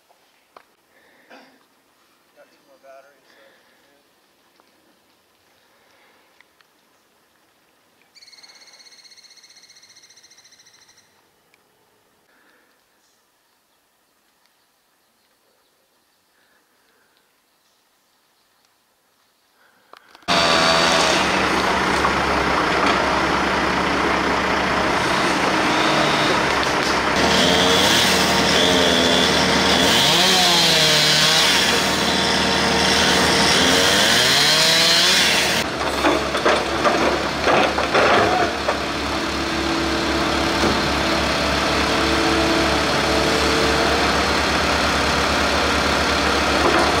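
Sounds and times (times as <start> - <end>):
high hydraulic whine: 20.3 - 29.6
excavator diesel engine running: 20.3 - 30.0, 31.7 - 34.0, 34.7 - 47.0.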